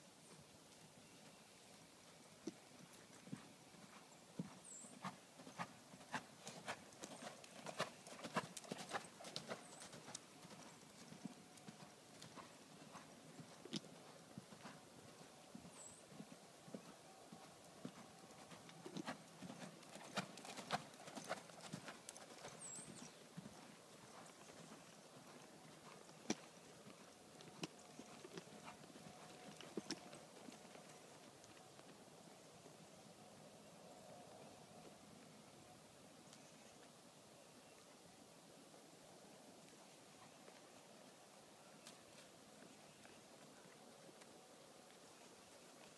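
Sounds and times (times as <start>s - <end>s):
faint hoofbeats on sand: 0.0s - 32.8s.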